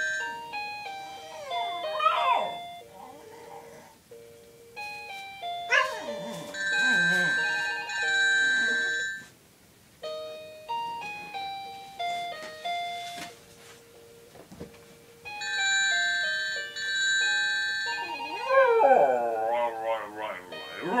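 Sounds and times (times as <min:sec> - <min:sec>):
electronic telephone ringtone: 0:00.0 - 0:02.9, 0:04.1 - 0:09.3, 0:15.2 - 0:18.8.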